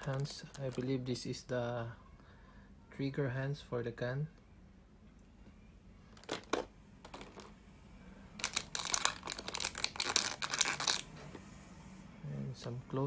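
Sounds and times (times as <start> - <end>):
plastic packaging crinkling: 0.0 - 1.1, 6.2 - 7.6, 8.4 - 11.1.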